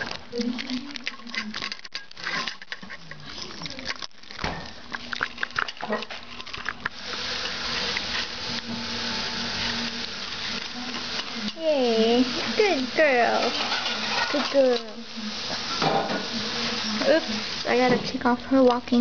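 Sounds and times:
dogs crunching kibble: 0.0 - 8.7
steady hiss: 6.8 - 19.0.

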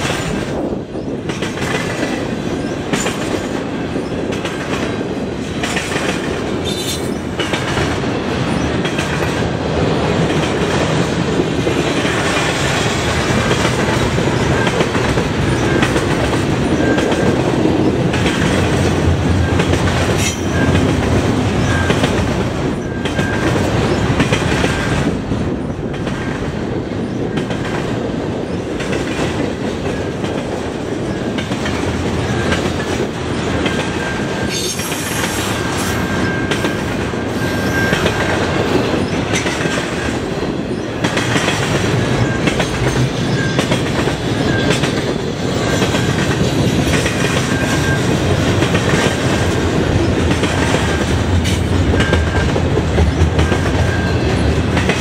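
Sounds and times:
wheels clacking over rail joints: 0.0 - 26.6, 37.8 - 55.0
train wheels rumbling on rail: 0.0 - 55.0.

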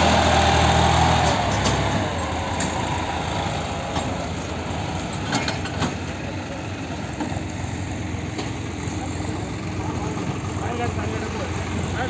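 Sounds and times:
tractor diesel engine under load: 0.0 - 12.0
trailer clanking: 0.0 - 12.0
trailer rolling rumble: 0.0 - 12.0.

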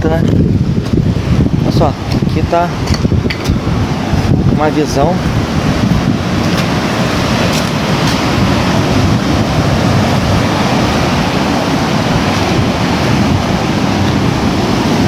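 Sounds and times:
waves breaking on beach: 0.0 - 15.0
wind on microphone: 0.0 - 15.0.

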